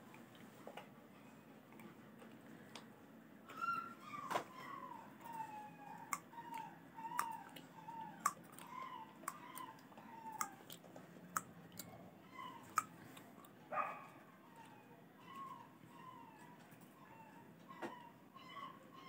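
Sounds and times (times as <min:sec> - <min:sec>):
puppy crying: 0:03.5 - 0:10.8, 0:11.4 - 0:19.0.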